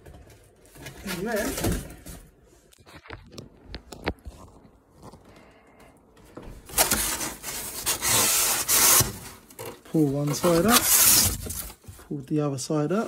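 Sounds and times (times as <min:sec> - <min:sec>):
cardboard flaps scraping and rustling: 0:00.0 - 0:02.4, 0:06.6 - 0:12.0.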